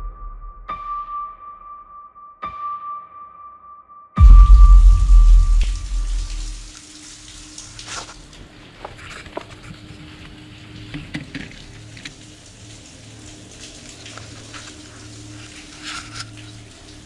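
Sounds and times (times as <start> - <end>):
deep low boom: 0.0 - 0.9, 4.2 - 6.7
steady low hum: 4.2 - 6.7
faint clicks and crackling rustles: 7.7 - 17.0.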